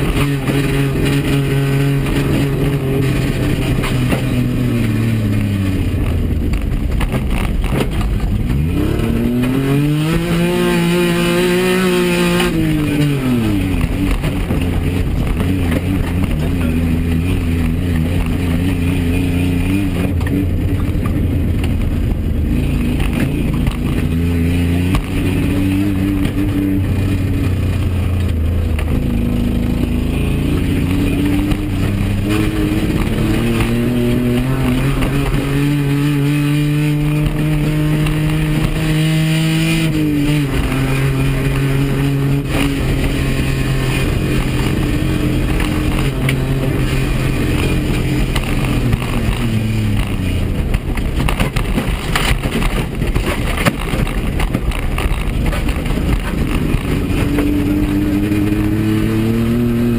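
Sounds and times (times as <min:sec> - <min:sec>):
car engine accelerating: 0:00.0 - 0:59.9
road noise: 0:00.0 - 0:59.9.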